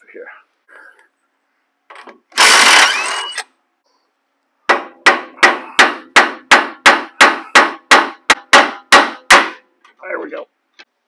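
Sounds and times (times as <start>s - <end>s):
hammer striking steel: 4.7s - 9.6s.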